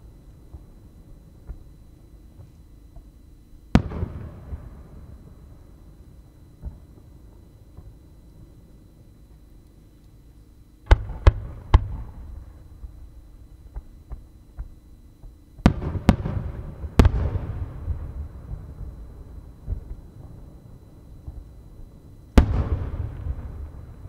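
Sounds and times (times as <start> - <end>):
faint firework pops: 1.4 - 1.7.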